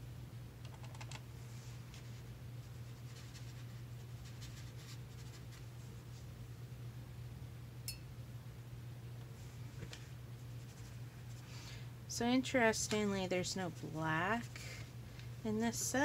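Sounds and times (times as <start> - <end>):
low steady hum: 0.0 - 16.0
brush strokes on paper: 1.5 - 6.3
light clink: 7.8 - 8.1.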